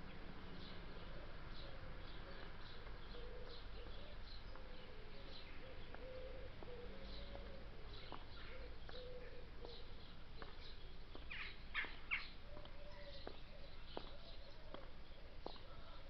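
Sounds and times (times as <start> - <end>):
songbirds chirping: 0.0 - 16.0
high heels clicking on pavement: 9.6 - 15.7.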